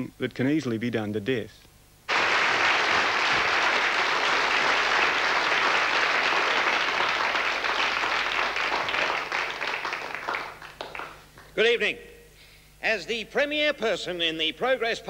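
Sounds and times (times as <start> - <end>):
audience applauding: 2.1 - 11.5.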